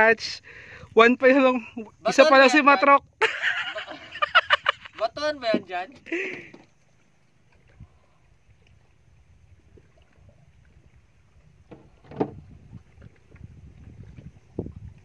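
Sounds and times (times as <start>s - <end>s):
water lapping against boat: 5.4s - 15.0s.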